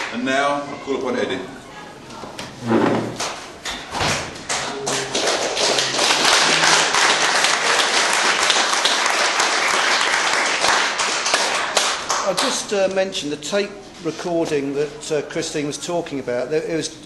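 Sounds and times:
audience clapping: 0:04.1 - 0:12.7.

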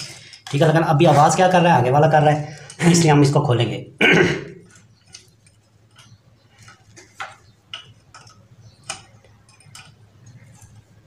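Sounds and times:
spanner ticking on metal nuts: 0:04.7 - 0:10.9.

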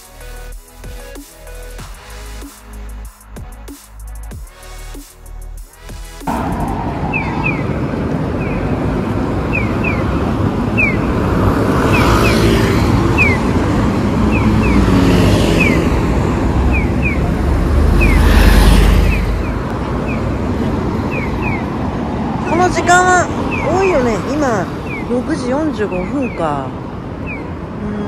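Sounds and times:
buses and cars passing: 0:00.0 - 0:28.0.

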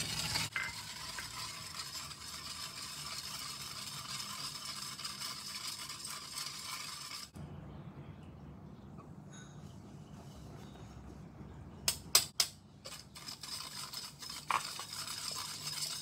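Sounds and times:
whisk scraping metal pot: 0:00.0 - 0:07.4, 0:12.9 - 0:16.0.

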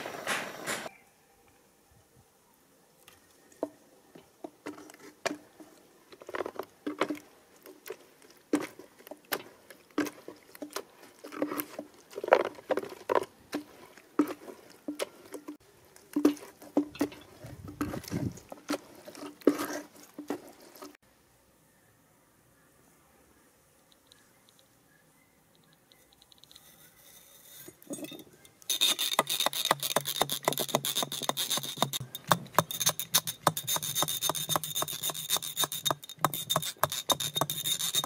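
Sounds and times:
sharp knocks and clicks: 0:28.7 - 0:38.0.

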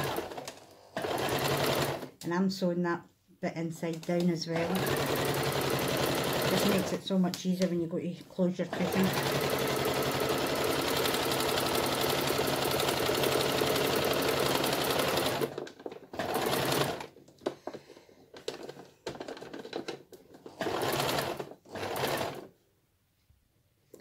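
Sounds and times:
electric sewing machine stitching: 0:00.0 - 0:02.2, 0:04.5 - 0:07.0, 0:08.6 - 0:17.2, 0:18.4 - 0:22.5.

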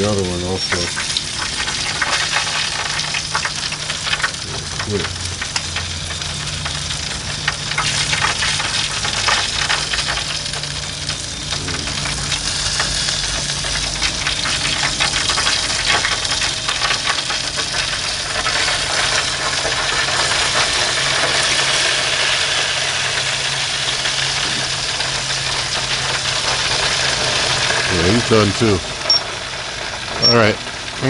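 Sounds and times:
low steady hum: 0:00.0 - 0:21.4
grill sizzling and crackling: 0:00.0 - 0:31.0.

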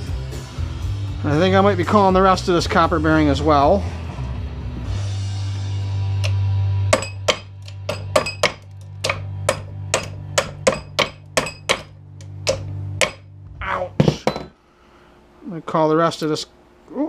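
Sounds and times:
hammer blows with metallic ring: 0:06.2 - 0:13.3.

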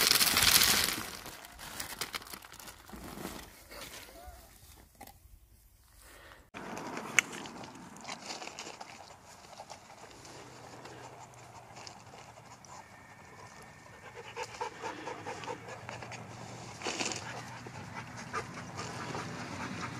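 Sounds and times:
dog panting: 0:09.4 - 0:13.0, 0:13.9 - 0:16.3, 0:17.2 - 0:19.9.

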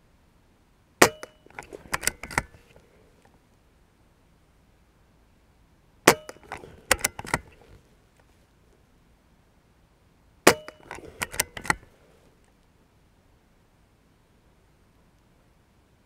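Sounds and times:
rifle bolt clicks and clacks: 0:01.0 - 0:02.8, 0:06.1 - 0:07.8, 0:10.5 - 0:11.9
air rifle shot crack: 0:10.5 - 0:11.9.

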